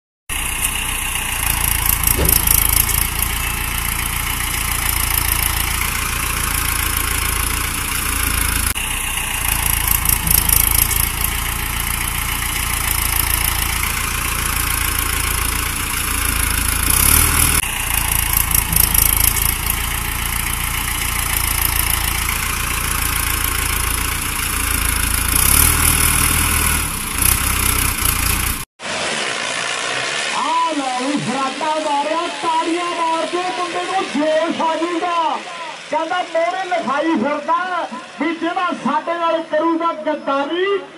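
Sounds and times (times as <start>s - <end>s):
high-pitched rattle: 0.3s - 28.6s
tractor engine running: 0.3s - 38.3s.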